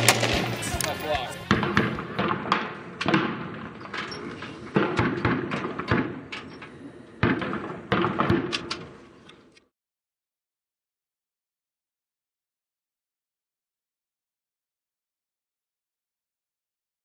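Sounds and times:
gunshots ringing out: 0.0 - 9.0.

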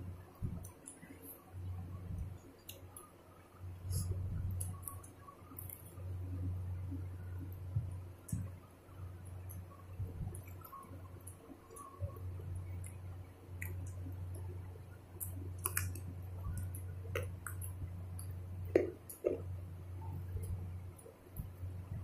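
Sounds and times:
low hum: 0.0 - 22.0
fingers squishing wet rice: 9.4 - 19.6
mouth clicks and chewing: 10.3 - 14.5, 15.2 - 19.5.

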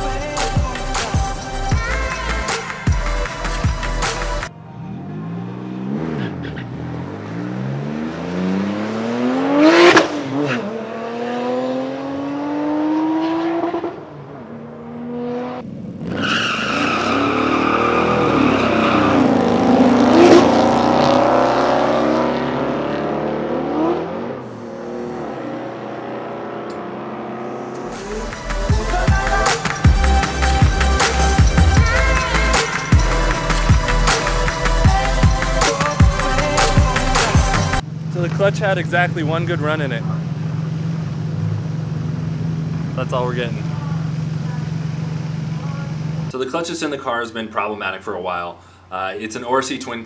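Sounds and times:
cars accelerating past: 4.6 - 28.2
tire squeal: 5.2 - 6.9, 16.0 - 20.5.

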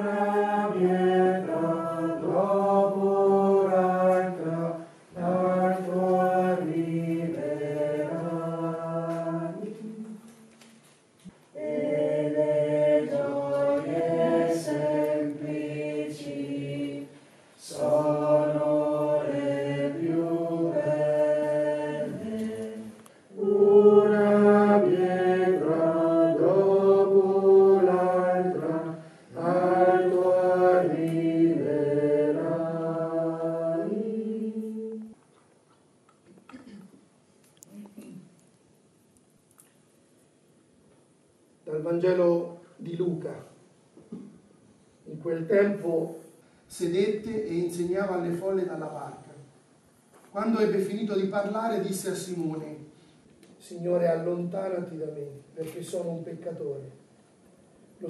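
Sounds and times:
group singing a hymn: 0.0 - 10.8, 11.5 - 35.2.

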